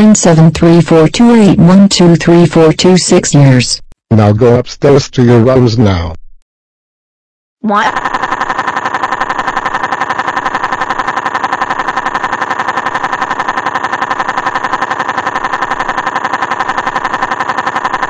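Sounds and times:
pulsing buzzing tone: 7.7 - 18.0.

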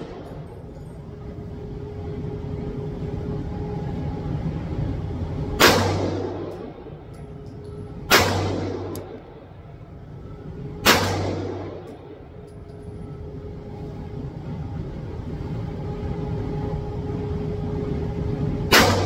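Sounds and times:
pistol shots echoing indoors: 5.5 - 9.6, 10.7 - 12.8, 18.7 - 19.0.

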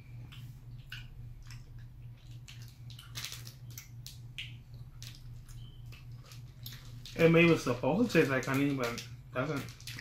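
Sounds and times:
low electrical hum: 0.0 - 10.0
plastic wrapper crinkling: 2.2 - 10.0.

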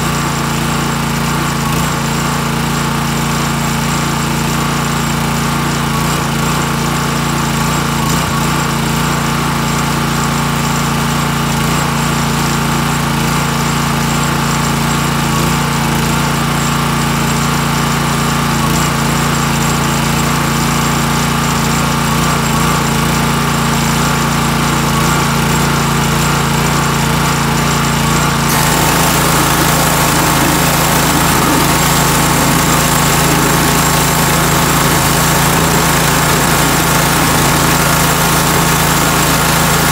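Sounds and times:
small engine running: 0.0 - 39.9
water spray hissing on metal: 28.5 - 39.9.

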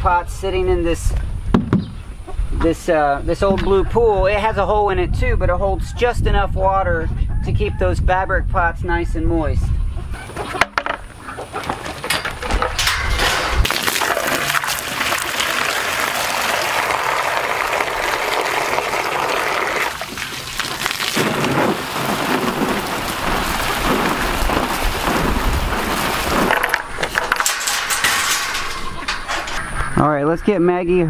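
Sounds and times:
hose water spraying: 13.6 - 29.6.

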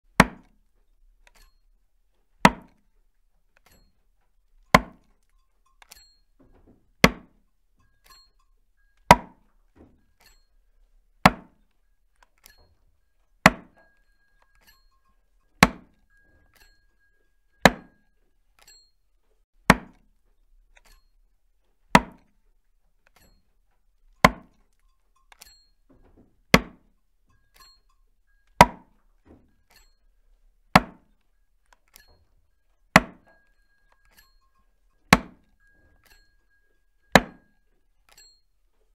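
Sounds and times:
axe chopping wood: 0.2 - 0.6, 2.4 - 2.8, 4.7 - 5.1, 7.0 - 7.4, 9.1 - 9.4, 11.2 - 11.6, 13.4 - 13.8, 15.6 - 16.0, 17.6 - 18.0, 19.7 - 20.1, 21.9 - 22.3, 24.2 - 24.6, 26.5 - 26.9, 28.6 - 28.9, 30.7 - 31.1, 32.9 - 33.3, 35.1 - 35.5, 37.1 - 37.5.

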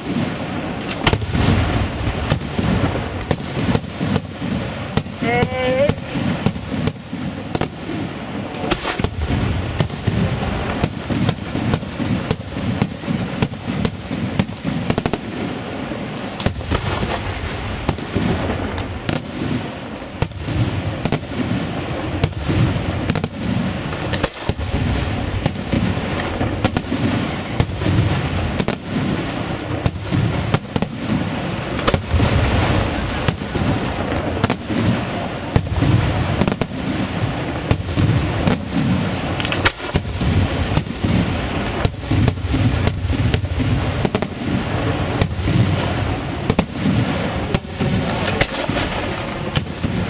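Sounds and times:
firework shells bursting: 0.0 - 15.4, 16.0 - 50.0.

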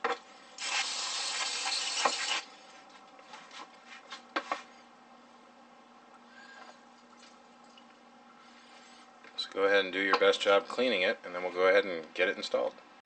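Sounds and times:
aerosol can spraying: 0.6 - 2.5.

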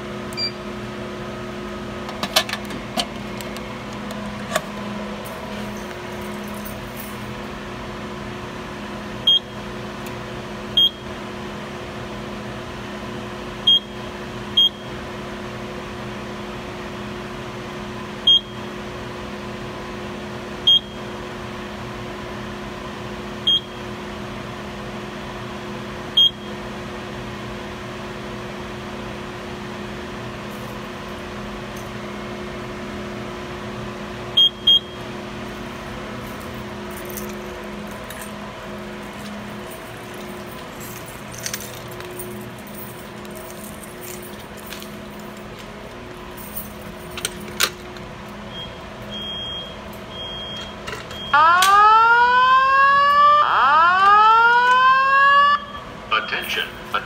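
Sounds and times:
steady electrical hum: 0.0 - 19.6, 20.3 - 57.0
short high keypad beeps: 0.4 - 0.6.

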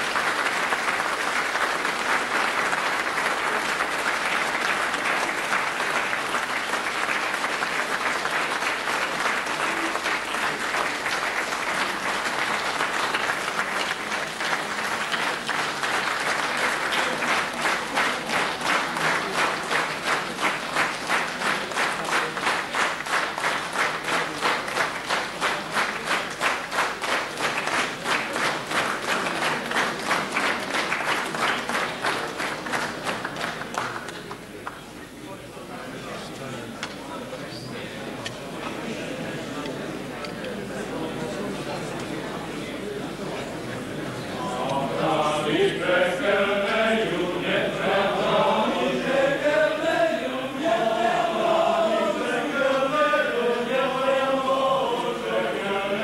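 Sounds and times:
crowd applauding: 0.0 - 34.8.

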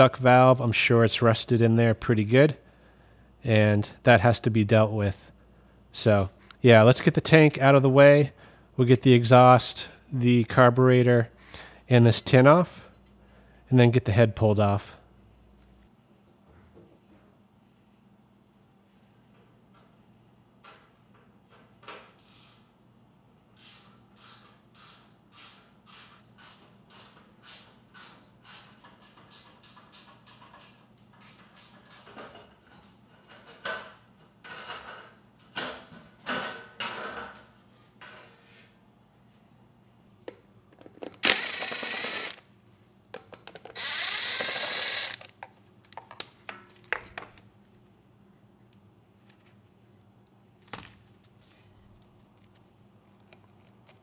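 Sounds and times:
cordless power driver running: 41.2 - 42.4, 43.7 - 45.4
hand ratchet clicking: 43.7 - 45.3.

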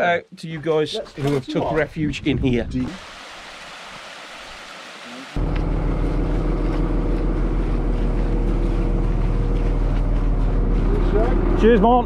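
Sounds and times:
water trickling: 2.9 - 6.4
excavator diesel engine running: 5.4 - 12.0.

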